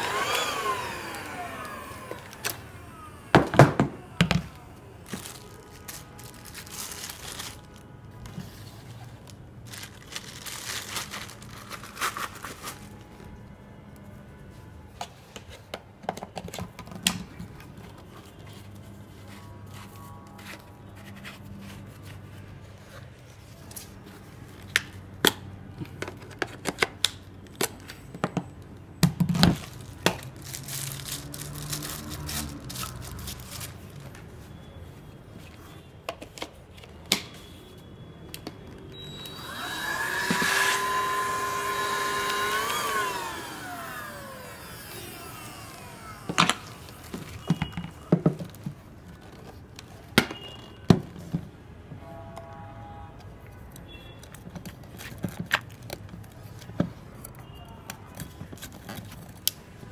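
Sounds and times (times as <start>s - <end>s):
vacuum motor whining: 0.0s - 5.6s, 39.0s - 47.8s.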